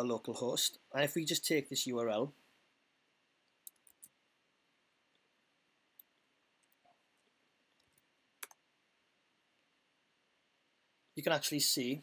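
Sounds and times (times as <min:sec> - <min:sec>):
faint computer clicks: 0:07.8 - 0:08.6.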